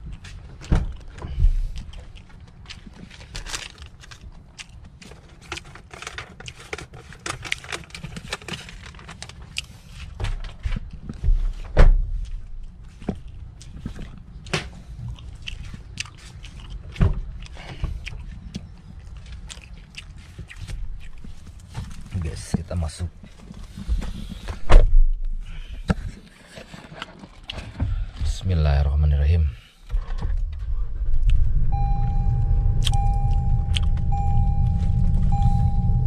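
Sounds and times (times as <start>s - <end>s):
handling clicks and crackles: 0.1s - 11.2s
car doors opening and shutting: 29.8s - 36.0s.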